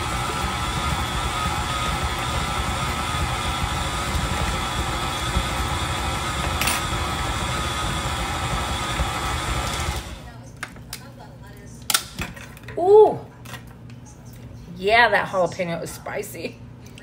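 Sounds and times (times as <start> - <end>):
stand mixer motor whining: 0.0 - 10.3.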